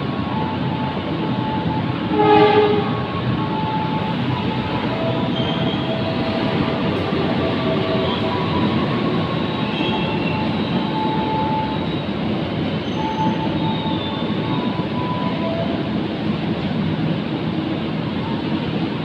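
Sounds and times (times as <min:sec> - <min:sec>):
train wheels rumbling on rails: 0:00.0 - 0:19.0
high wheel squeals: 0:03.4 - 0:15.9.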